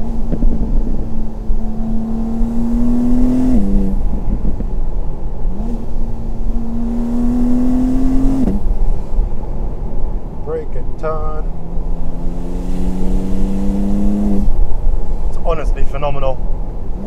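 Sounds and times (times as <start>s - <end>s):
car engine accelerating hard: 0.0s - 4.8s, 5.5s - 9.0s, 11.5s - 14.6s.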